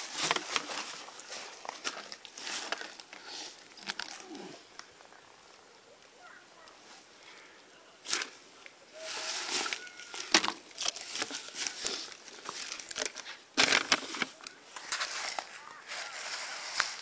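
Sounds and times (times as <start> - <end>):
dry leaves crunching underfoot: 9.0 - 17.0.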